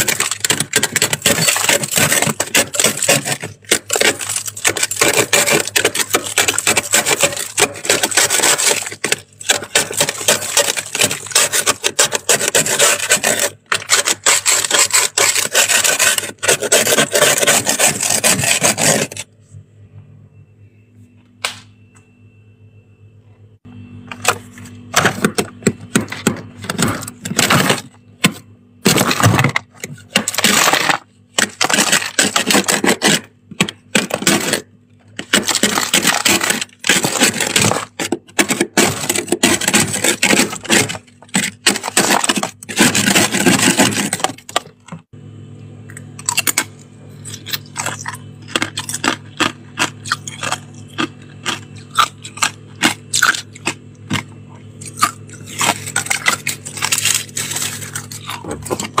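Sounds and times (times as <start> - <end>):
frost being scraped: 0.0 - 19.3, 30.0 - 44.5, 54.8 - 59.0.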